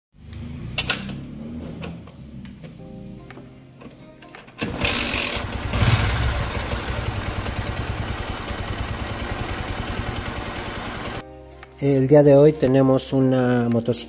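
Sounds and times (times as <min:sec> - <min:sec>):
motorcycle engine starting and running: 0:00.2 - 0:02.6, 0:04.6 - 0:11.2.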